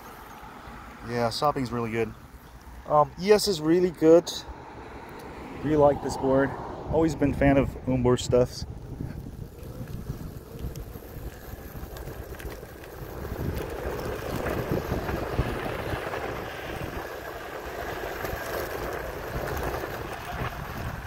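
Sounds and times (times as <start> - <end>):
skateboard wheels rolling on pavement: 0.0 - 21.0
wind rumbling on microphone: 4.5 - 21.0.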